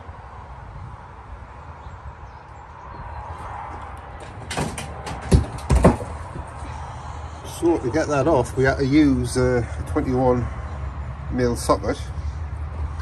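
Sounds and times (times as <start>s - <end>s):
sharp knocks and clunks: 4.2s - 6.6s.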